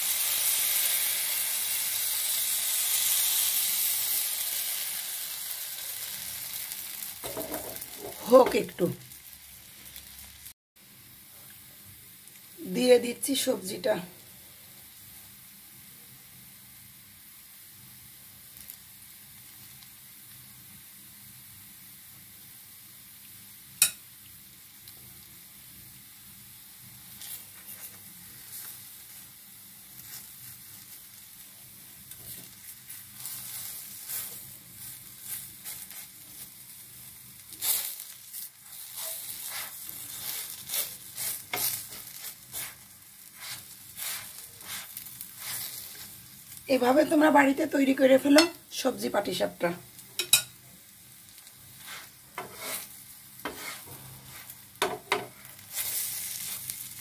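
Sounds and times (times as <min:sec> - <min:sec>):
crepe sizzling in a pan: 0:00.0 - 0:57.0
spatula scraping and tapping pan: 0:07.2 - 0:08.6, 0:39.0 - 0:42.8, 0:48.3 - 0:48.6, 0:50.2 - 0:50.6, 0:51.8 - 0:55.4.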